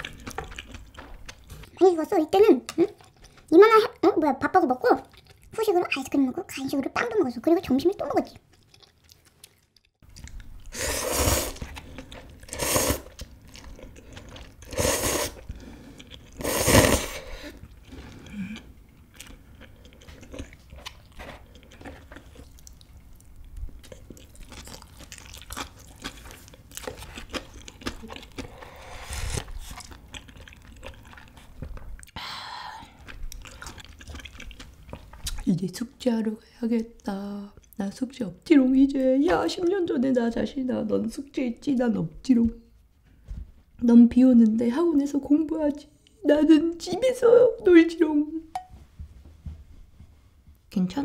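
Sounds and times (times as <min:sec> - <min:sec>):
chewing with wet mouth clicks: 0:00.0 - 0:01.7, 0:02.6 - 0:03.5, 0:05.0 - 0:05.6, 0:08.2 - 0:10.7, 0:17.6 - 0:28.6, 0:29.6 - 0:32.2, 0:33.0 - 0:35.5
noodles slurped: 0:10.2 - 0:18.6, 0:24.2 - 0:31.5.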